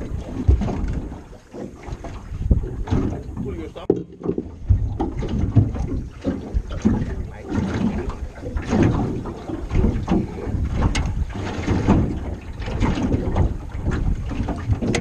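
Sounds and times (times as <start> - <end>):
water lapping against boat hull: 0.0 - 15.0
wind buffeting microphone: 0.0 - 15.0.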